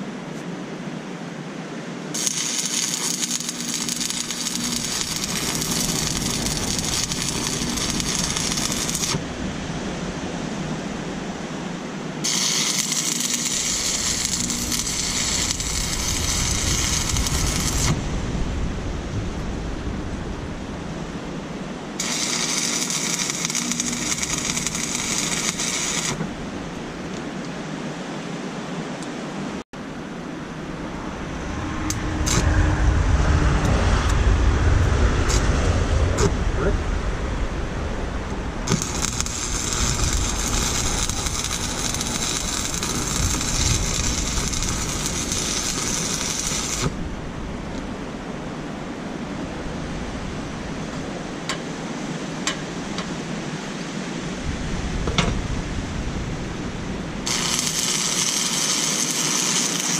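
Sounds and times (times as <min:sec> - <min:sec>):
welding arc crackling and hissing: 0:02.1 - 0:09.3, 0:12.2 - 0:18.2, 0:22.0 - 0:26.4, 0:31.9 - 0:32.6, 0:38.6 - 0:47.0, 0:57.0 - 0:59.9.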